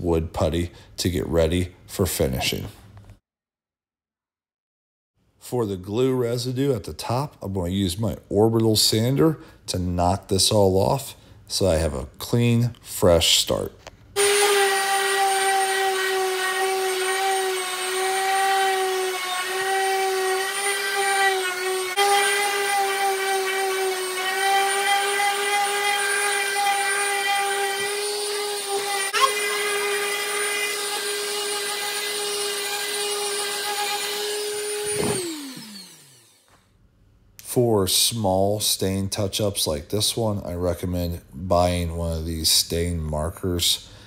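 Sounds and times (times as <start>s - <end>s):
orbital sander on wood: 14.2s - 36.4s.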